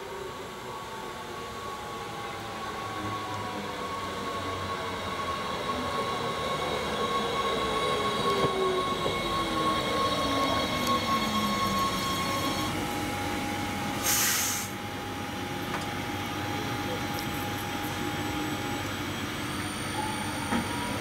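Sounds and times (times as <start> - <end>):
electric train drive whining: 0.0 - 14.0, 14.7 - 21.0.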